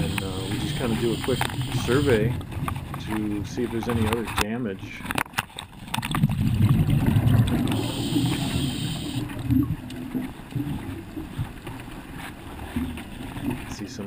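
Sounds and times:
regulator air hiss: 0.0 - 2.3, 7.7 - 9.3
exhaled bubbles gurgling underwater: 0.0 - 3.1, 5.7 - 11.6.

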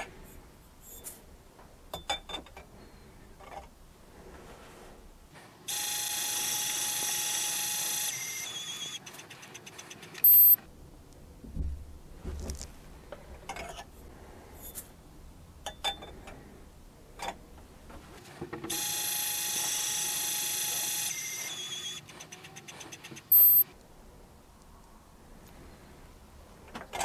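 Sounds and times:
scale beep: 10.2 - 10.6, 23.3 - 23.6.

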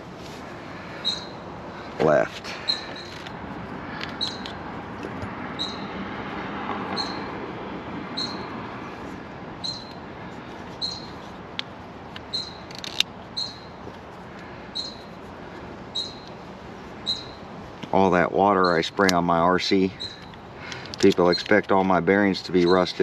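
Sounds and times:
bird chirping: 0.9 - 1.4, 2.5 - 3.2, 4.1 - 4.5, 5.5 - 5.9, 6.9 - 7.3, 8.1 - 8.5, 9.6 - 10.0, 10.8 - 11.2, 12.3 - 13.8, 14.7 - 15.1, 15.9 - 16.4, 17.0 - 17.5, 18.6 - 18.9, 19.9 - 21.5
sharp clicks: 20.1 - 21.8.

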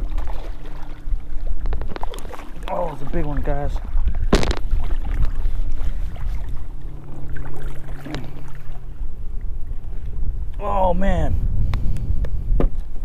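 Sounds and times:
wind rumble on microphone: 0.0 - 13.0
small knock or splash: 4.3 - 5.3.

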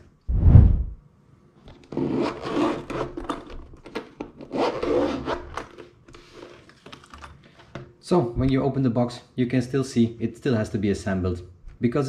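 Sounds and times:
zipper rasping open: 1.9 - 3.3, 4.4 - 5.6.

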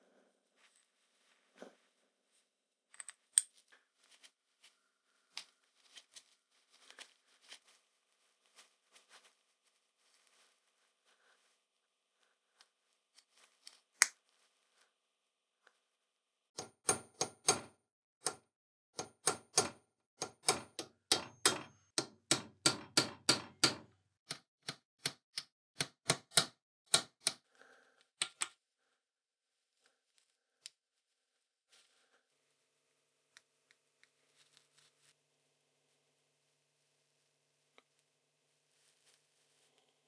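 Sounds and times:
hammer tapping metal punch: 16.6 - 18.4, 19.0 - 23.9.

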